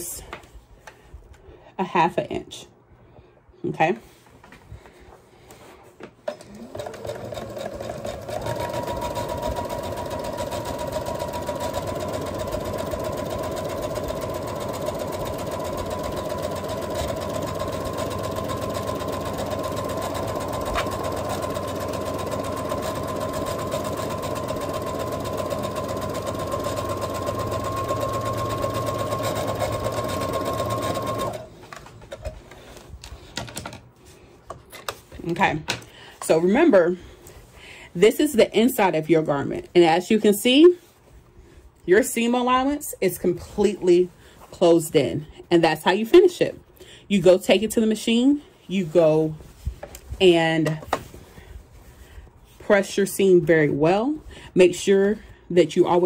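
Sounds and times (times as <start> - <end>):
sewing machine stitching: 6.3 - 31.5.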